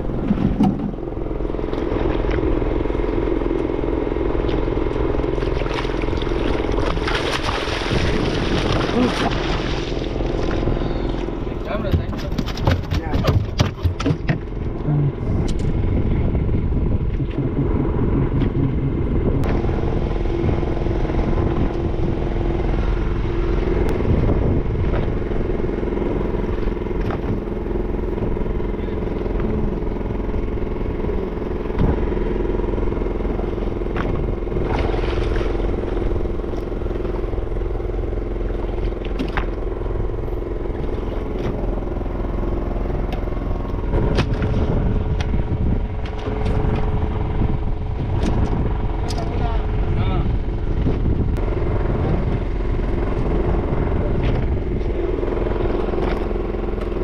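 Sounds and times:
boat engine droning: 0:00.0 - 0:57.0.

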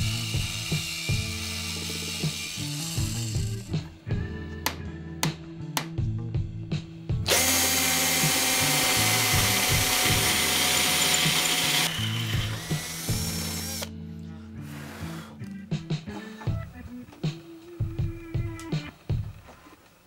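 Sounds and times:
power drill boring through steel: 0:00.0 - 0:03.7, 0:07.3 - 0:13.9.

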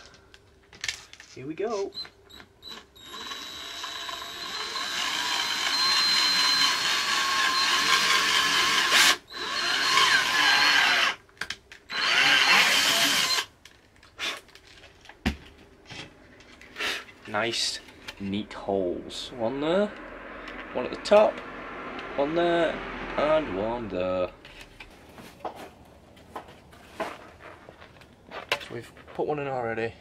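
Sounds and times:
cordless drill boring plastic: 0:02.0 - 0:11.2, 0:11.9 - 0:13.5.

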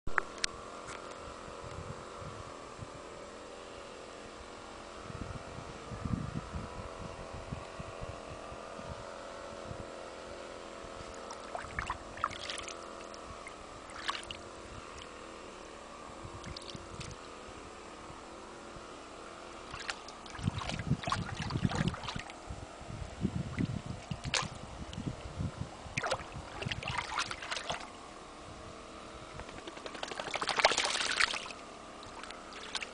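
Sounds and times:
steady hum: 0:00.1 - 0:32.9
dog paws splashing in water: 0:19.7 - 0:22.2, 0:29.5 - 0:32.9.

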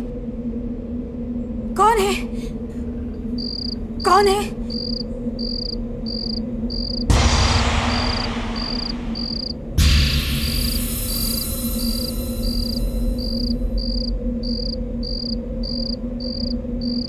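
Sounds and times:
steady low hum: 0:00.0 - 0:17.0
crickets chirping: 0:03.1 - 0:17.0
whoosh sound effect: 0:07.1 - 0:13.1
sudden hit sound effect: 0:07.1 - 0:13.7.

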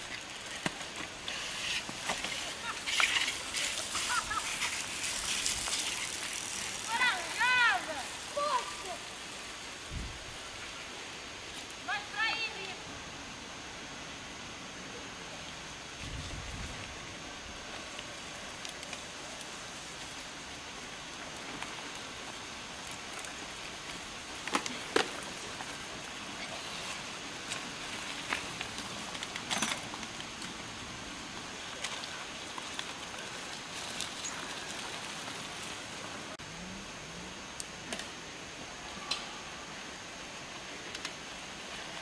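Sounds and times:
bike chains and frames rattling: 0:00.0 - 0:08.4, 0:22.8 - 0:30.9
tyres hissing on dirt trail: 0:00.0 - 0:42.0.

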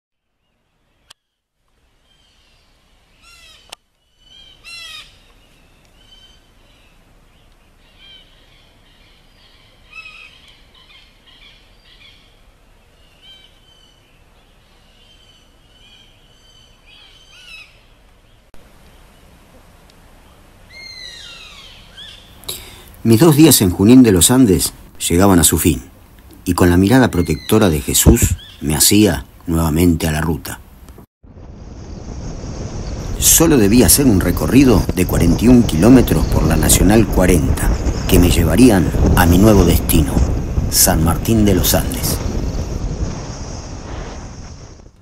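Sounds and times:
faint outdoor background: 0:00.1 - 0:45.0
birds chirping and whistling: 0:26.9 - 0:28.7.

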